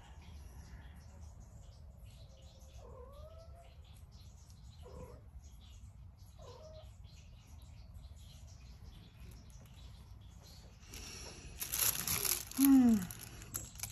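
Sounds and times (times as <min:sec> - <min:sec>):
cat meowing softly: 0:06.4 - 0:06.9.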